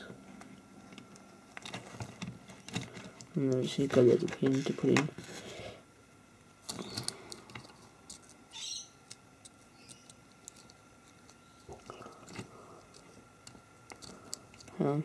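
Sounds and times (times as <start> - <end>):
small metal parts clicking: 6.6 - 8.4, 9.1 - 14.8.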